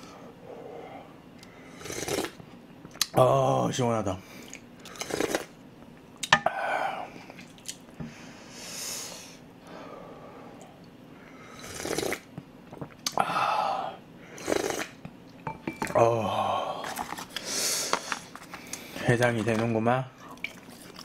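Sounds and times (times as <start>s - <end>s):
person slurping soup: 1.7s - 2.4s, 4.8s - 5.6s, 11.5s - 13.0s, 14.3s - 15.0s.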